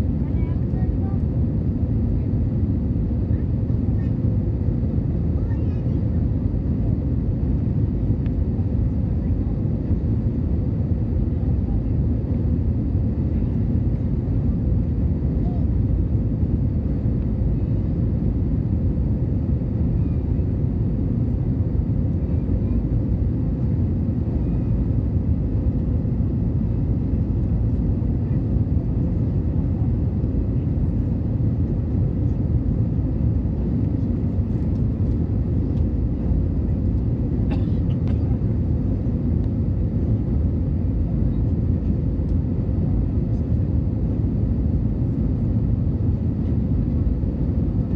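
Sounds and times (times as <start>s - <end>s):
airliner engine rumble: 0.0s - 47.9s.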